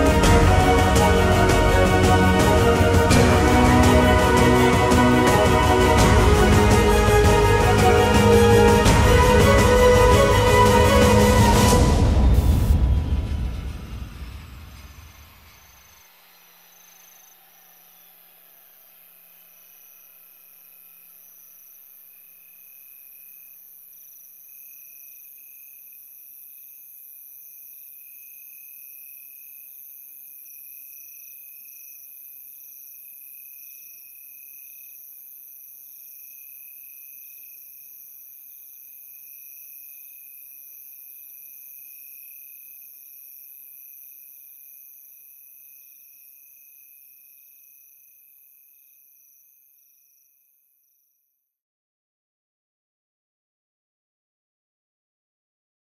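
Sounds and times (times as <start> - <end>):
crickets and insects chirping: 12.4 - 51.3.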